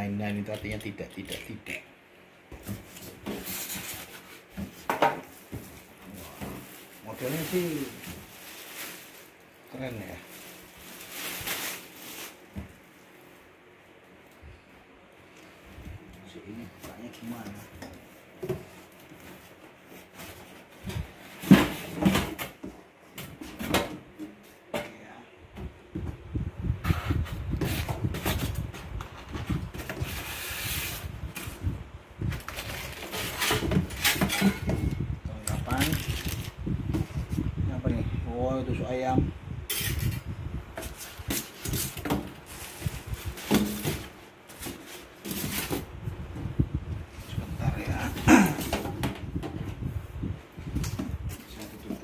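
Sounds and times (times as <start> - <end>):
cardboard rustling and knocking: 2.5 - 9.0, 18.4 - 24.4, 40.8 - 46.6.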